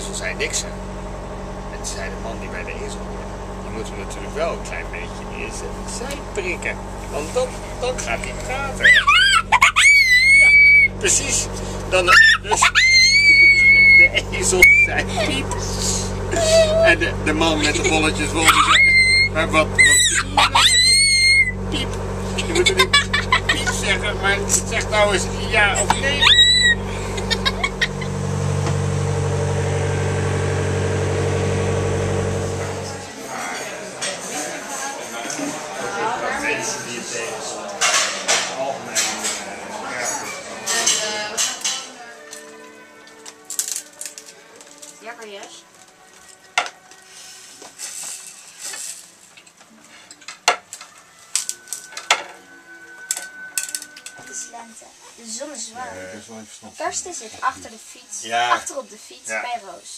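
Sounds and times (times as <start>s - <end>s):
boat engine droning: 0.0s - 33.4s, 50.9s - 55.4s
child squealing: 8.8s - 11.0s, 12.1s - 15.3s, 16.3s - 17.0s, 18.4s - 21.9s, 25.8s - 27.8s
faint steady high tone: 51.0s - 54.9s.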